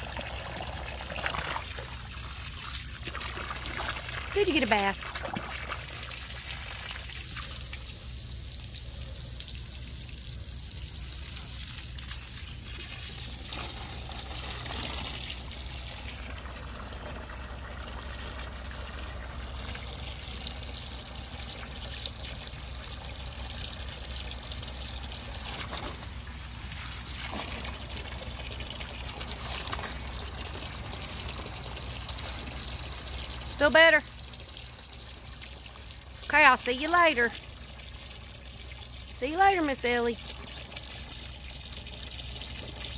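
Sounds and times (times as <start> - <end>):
hose water spraying: 0.0 - 16.5, 25.3 - 28.2.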